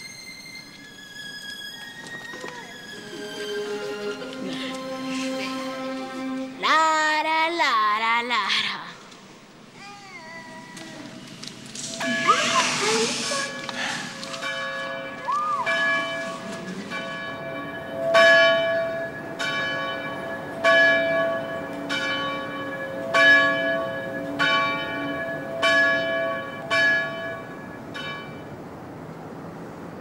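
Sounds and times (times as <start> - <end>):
church bell pealing: 11.1 - 28.7.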